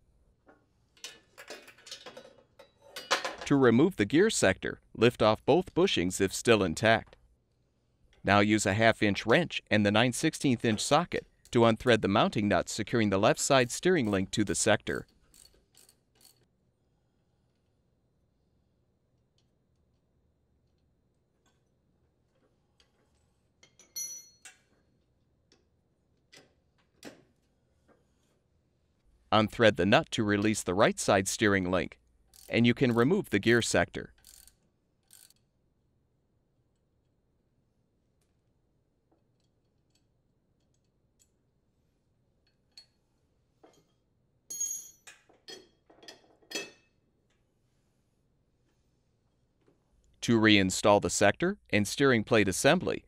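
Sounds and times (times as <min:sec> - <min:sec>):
metal clinking and knocking: 0:01.0 - 0:03.5
wrench clinking on metal bolt: 0:23.6 - 0:24.7.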